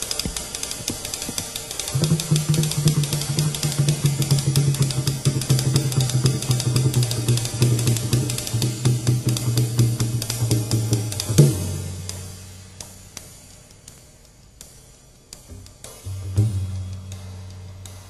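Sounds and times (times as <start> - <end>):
drums played fast: 0.0 - 13.6, 14.2 - 18.0
cymbals and hi-hat ringing: 0.0 - 18.0
steady low tone: 15.5 - 18.0.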